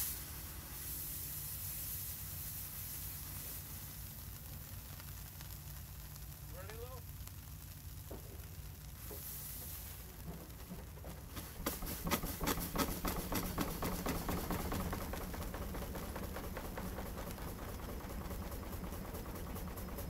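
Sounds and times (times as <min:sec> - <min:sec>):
steam engine humming: 0:00.0 - 0:20.0
rapid sharp chuffs and clicks: 0:10.1 - 0:20.0.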